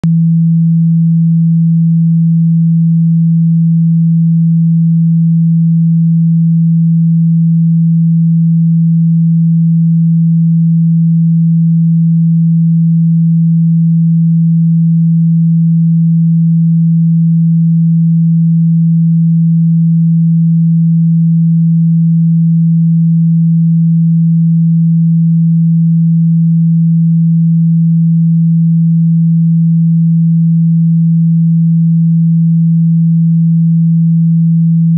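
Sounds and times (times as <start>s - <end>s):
low sine wave hum: 0.0s - 34.9s.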